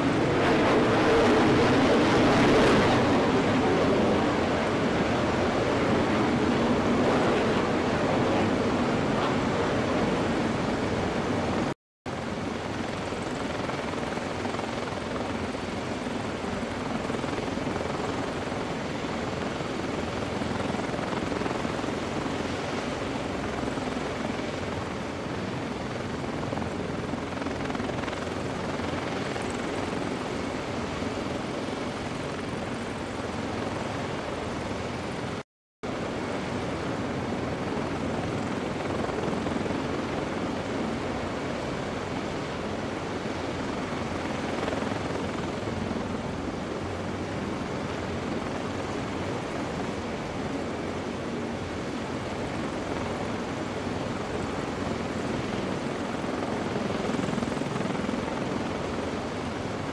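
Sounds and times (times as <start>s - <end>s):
helicopter turbine and rotor noise: 0.0s - 59.9s.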